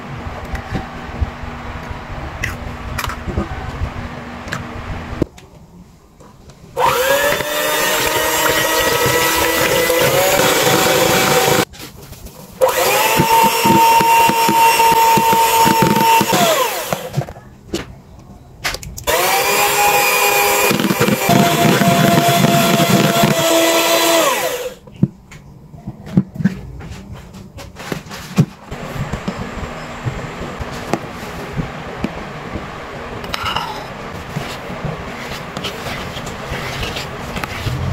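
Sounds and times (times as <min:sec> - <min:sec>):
electric hand mixer whisking: 0:06.8 - 0:11.7, 0:12.6 - 0:17.2, 0:19.1 - 0:24.8.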